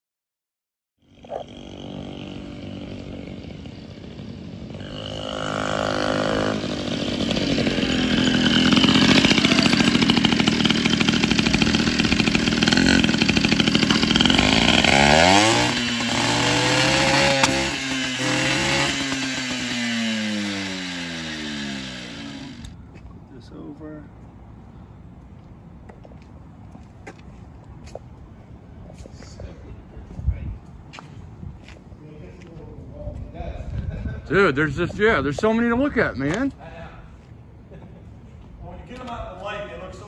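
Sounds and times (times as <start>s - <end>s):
motorcycle engine revving: 1.0s - 22.8s.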